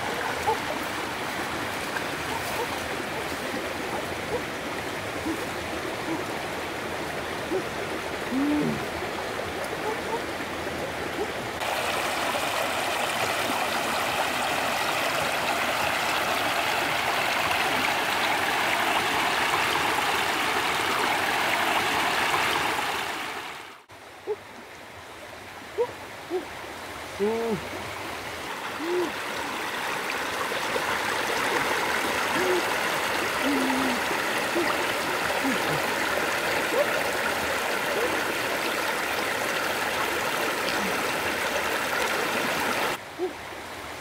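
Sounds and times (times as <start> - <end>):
stream splashing over rocks: 0.0 - 23.9, 25.4 - 43.0
flowing water: 0.0 - 44.0
short low calls: 8.3 - 8.9, 27.1 - 27.8, 28.8 - 29.2.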